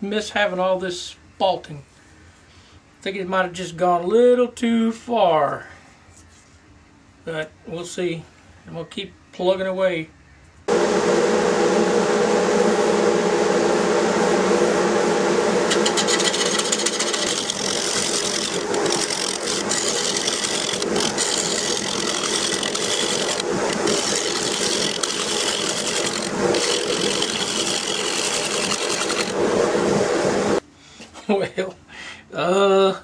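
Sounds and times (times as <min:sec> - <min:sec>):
hiss of wood shavings: 0:10.7 - 0:30.6
lathe motor hum: 0:10.7 - 0:30.6.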